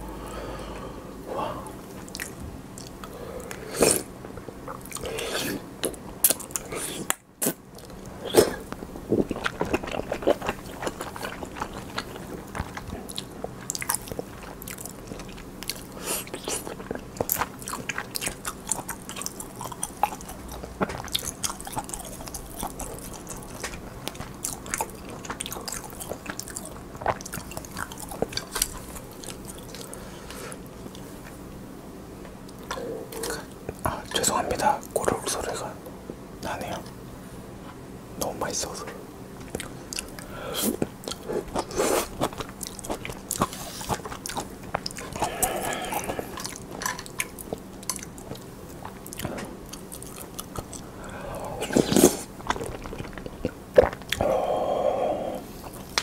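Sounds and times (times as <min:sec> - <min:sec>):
close chewing and mouth sounds: 0:01.5 - 0:31.6, 0:32.2 - 0:37.0, 0:37.6 - 0:56.0.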